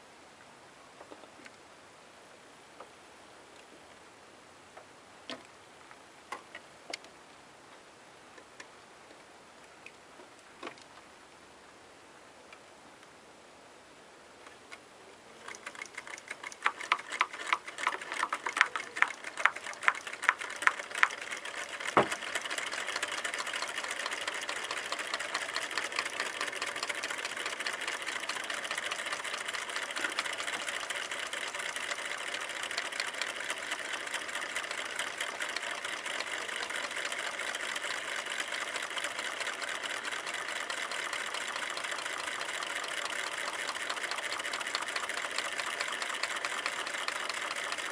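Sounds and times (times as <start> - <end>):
small engines clicking and rattling: 15.4 - 47.9.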